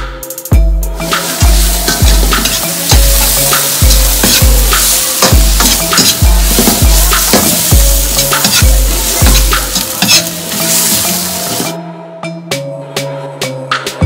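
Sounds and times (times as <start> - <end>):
music with deep bass beat: 0.0 - 14.0
food sizzling in a wok: 0.9 - 11.8
metal ladle scraping a pan: 1.0 - 11.8.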